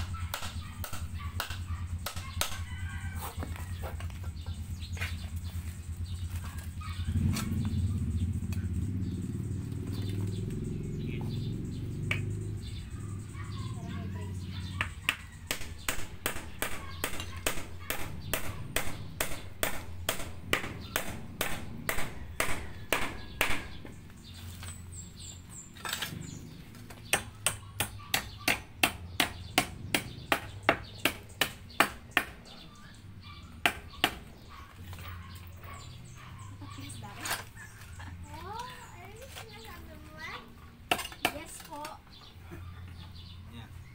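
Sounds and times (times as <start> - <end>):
hammer hitting nails into wood: 14.8 - 23.8, 27.1 - 32.4.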